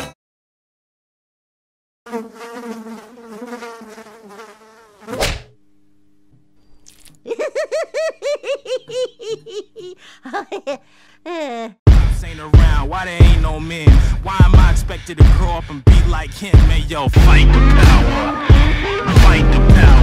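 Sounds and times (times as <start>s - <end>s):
housefly buzzing: 2.1s - 5.6s
fly swatter swat: 5.0s - 5.5s.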